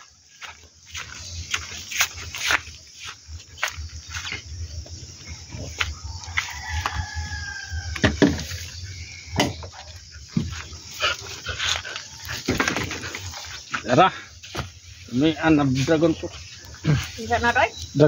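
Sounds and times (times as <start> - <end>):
rooster crowing: 5.8 - 8.8.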